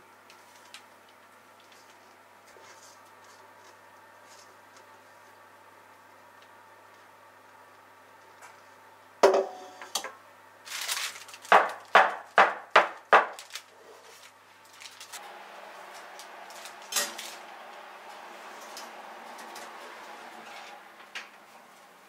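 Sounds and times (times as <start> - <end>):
parchment rustle: 10.6 - 12.0, 13.3 - 17.5
oven rushing noise: 14.6 - 22.0.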